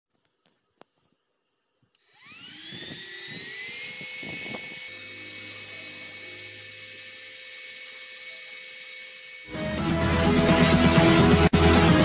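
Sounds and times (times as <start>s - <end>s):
cpu fan whirring: 0.7s - 9.8s.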